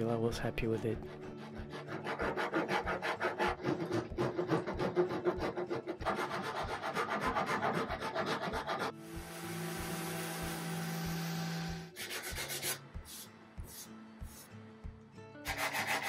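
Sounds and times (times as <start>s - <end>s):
hand rasp scraping wood: 1.0s - 9.0s, 15.5s - 16.0s
power sander humming: 8.9s - 12.0s.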